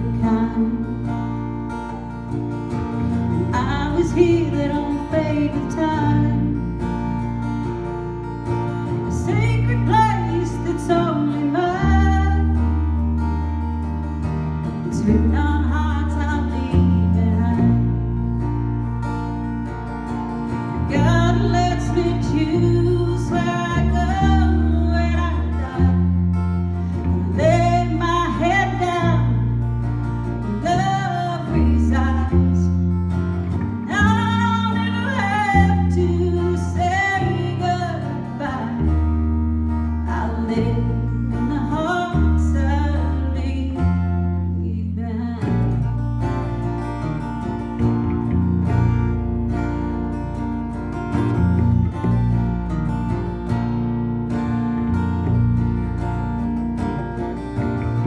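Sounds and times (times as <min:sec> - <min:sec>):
woman singing: 0:00.0 - 0:02.2, 0:02.9 - 0:07.2, 0:08.9 - 0:13.2, 0:14.7 - 0:18.5, 0:20.8 - 0:46.4
strummed acoustic guitar: 0:00.0 - 0:58.0.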